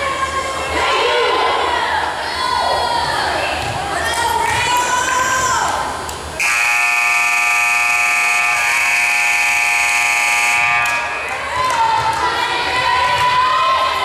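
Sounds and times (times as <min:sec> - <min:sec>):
crowd chatter: 0:00.0 - 0:06.5, 0:10.5 - 0:14.0
scoreboard buzzer long harsh tone: 0:06.4 - 0:11.2.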